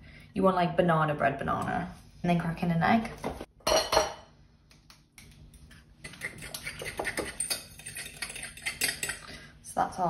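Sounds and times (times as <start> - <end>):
fork clinking on glass bowl: 6.1 - 9.2.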